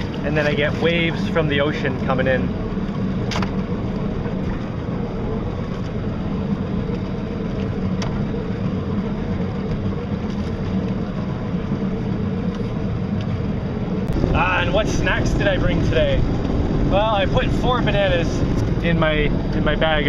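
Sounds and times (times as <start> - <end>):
low even motor hum: 0.0 - 20.0
wind noise: 13.4 - 20.0
water rushing: 14.1 - 18.9.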